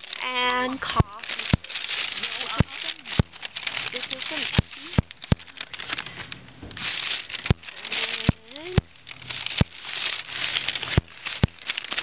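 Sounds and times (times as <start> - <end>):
paper bag rustling: 0.0 - 12.0
sharp clicks: 0.8 - 12.0.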